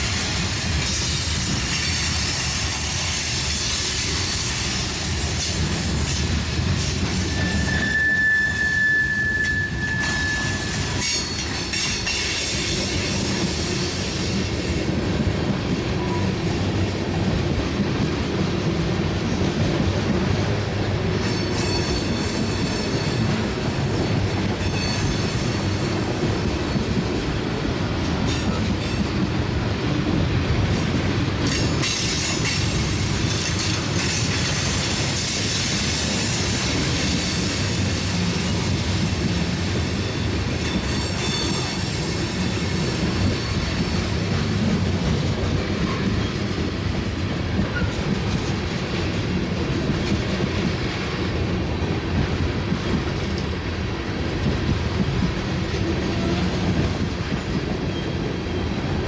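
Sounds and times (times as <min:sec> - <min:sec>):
train wheels rumbling on rails: 0:00.0 - 0:59.0
high wheel squeal: 0:07.0 - 0:14.2, 0:21.2 - 0:23.4, 0:40.0 - 0:43.9.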